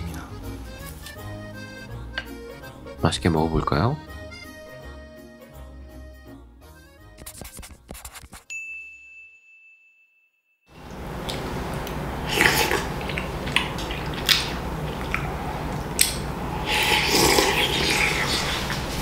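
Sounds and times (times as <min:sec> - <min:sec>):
person chewing: 0:00.0 - 0:03.0, 0:11.3 - 0:19.0
chime tone: 0:08.5 - 0:10.7
slurping broth: 0:12.2 - 0:19.0.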